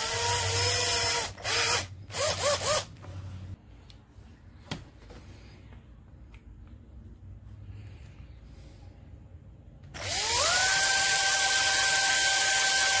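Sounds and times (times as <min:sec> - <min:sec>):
cordless drill running in bursts: 0:10.0 - 0:13.0.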